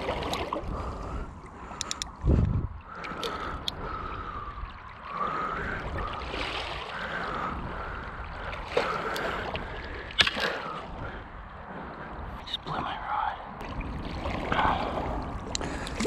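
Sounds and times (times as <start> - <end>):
river current gurgling: 0.0 - 16.0
sharp clicks: 1.8 - 2.2.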